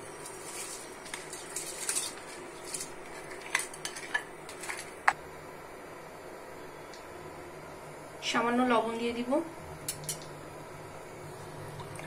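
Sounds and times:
rice sliding: 0.0 - 5.0.

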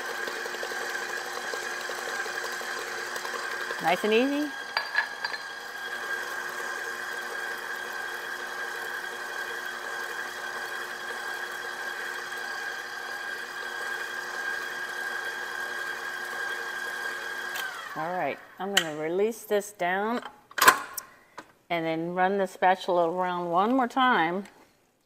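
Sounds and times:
stand mixer motor humming: 0.0 - 18.0.

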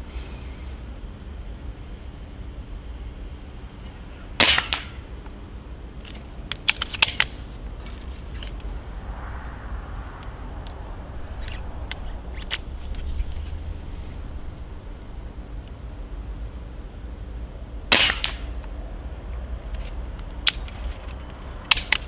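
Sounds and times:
suppressed air rifle shot: 4.4 - 5.0, 17.9 - 18.6
sharp metallic clicks: 6.0 - 8.7, 19.7 - 22.0.

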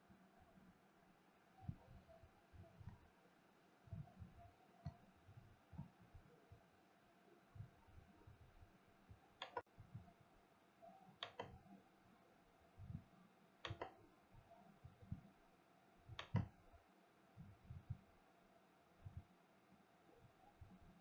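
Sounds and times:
sharp clicks: 9.4 - 9.6, 11.2 - 11.6, 13.6 - 14.0, 16.2 - 16.5
soft low thumps: 12.8 - 13.1, 17.4 - 18.1.

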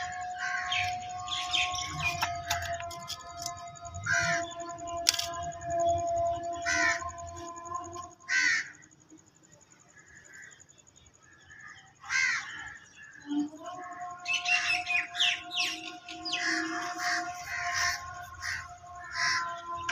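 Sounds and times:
crows cawing: 0.0 - 1.9, 4.0 - 4.7, 6.6 - 7.1, 8.3 - 8.9, 11.4 - 13.1, 14.2 - 19.9.

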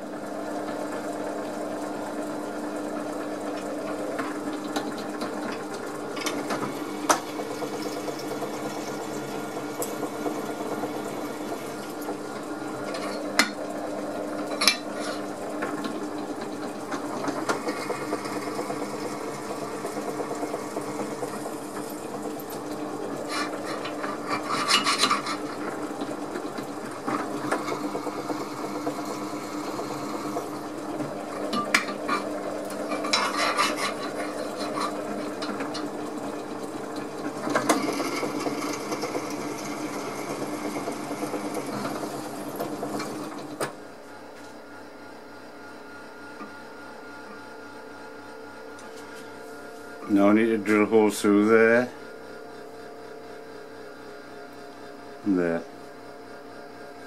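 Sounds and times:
drill press humming: 0.0 - 54.2
drill bit cutting metal: 27.4 - 30.6.

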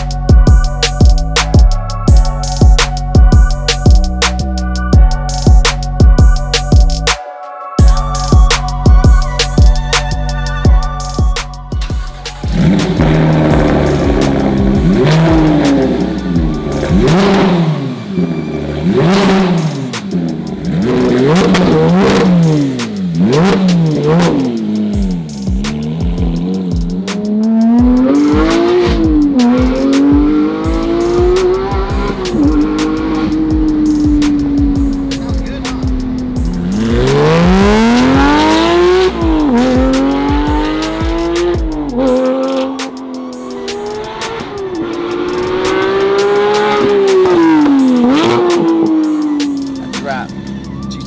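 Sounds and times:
car engine revving: 12.2 - 51.0.

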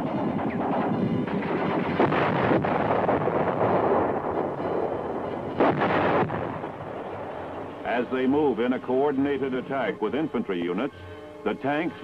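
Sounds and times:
continuous rumble of gunfire: 0.0 - 8.6
sharp gunshots cracking: 0.1 - 7.8.

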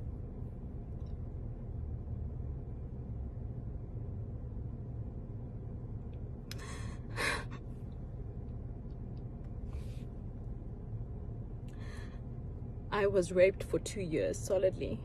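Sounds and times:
steady low hum: 0.0 - 15.0
woman breathing tearfully: 6.6 - 7.6.

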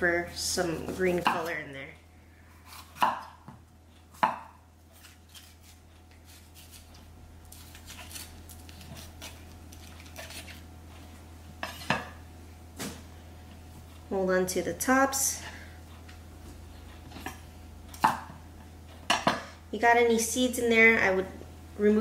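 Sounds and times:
knife chopping on wooden board: 2.7 - 5.4, 17.1 - 18.3.

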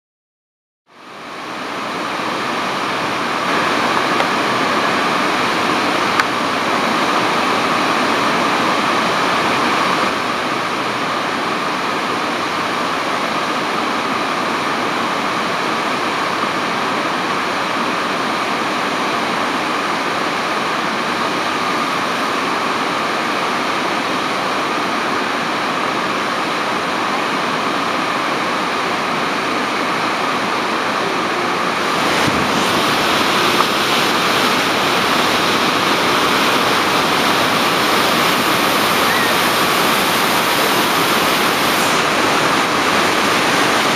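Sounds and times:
waterfall rushing: 1.0 - 43.9.

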